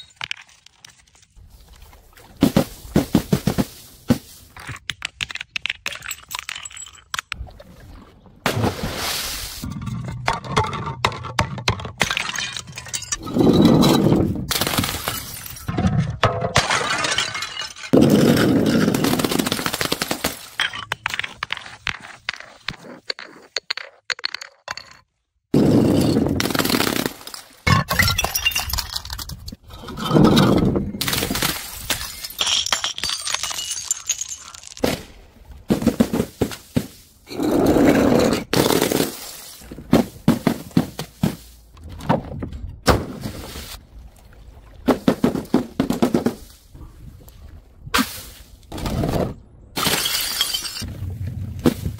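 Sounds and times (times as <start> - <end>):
glass shards tinkling: 32.0 - 34.8.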